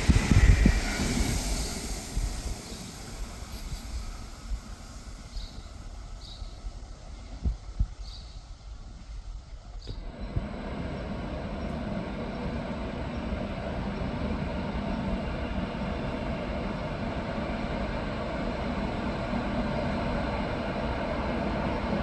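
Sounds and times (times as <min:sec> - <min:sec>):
train rumbling on tracks: 0:00.0 - 0:22.0.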